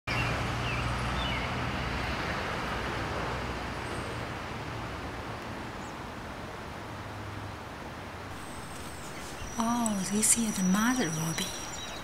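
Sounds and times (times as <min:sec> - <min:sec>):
distant road traffic rumble: 0:00.1 - 0:12.0
bird chirps: 0:08.3 - 0:12.0
low hum: 0:08.3 - 0:12.0.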